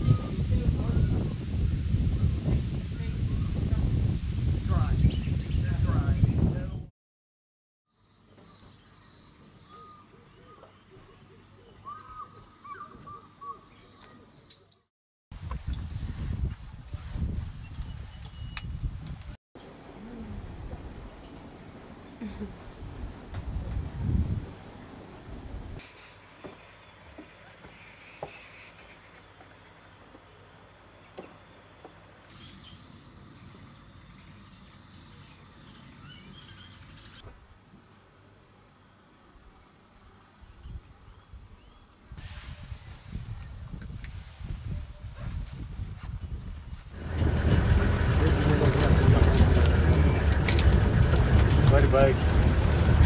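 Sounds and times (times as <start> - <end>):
birds calling: 8.0 - 14.8, 24.8 - 30.4, 31.0 - 37.4
high-pitched insect chorus: 25.8 - 33.1
low rumbling noise: 46.9 - 53.0.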